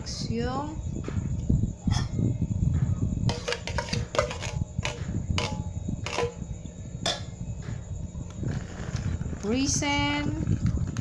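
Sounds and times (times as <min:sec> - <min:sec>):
low steady rumble: 0:00.0 - 0:11.0
metal spoons clinking in steel bowl: 0:03.3 - 0:06.4.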